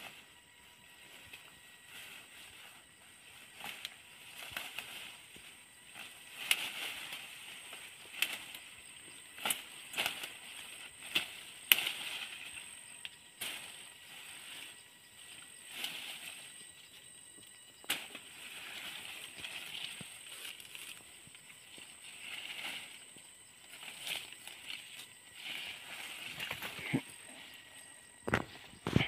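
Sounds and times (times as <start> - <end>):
leafy vines rustling: 0.0 - 29.0
stems snapping: 5.9 - 7.0, 7.7 - 8.6, 9.4 - 12.4, 17.8 - 18.2.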